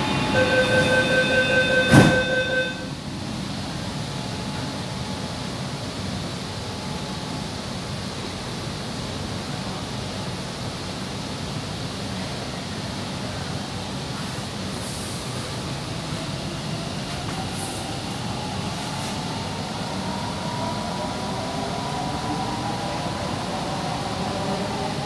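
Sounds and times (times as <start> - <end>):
metro carriage running noise: 0.0 - 25.0
electronic tone: 0.1 - 2.9.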